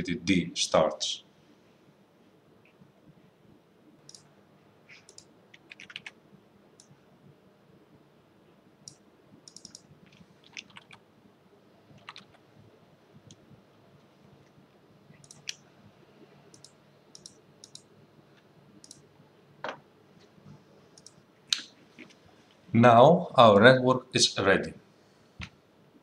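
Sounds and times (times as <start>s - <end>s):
low room hum: 0.0s - 26.0s
computer mouse and keyboard clicks: 4.1s - 4.3s, 4.9s - 6.2s, 8.8s - 11.0s, 12.0s - 12.4s, 15.1s - 15.6s, 16.5s - 17.9s, 18.8s - 19.0s.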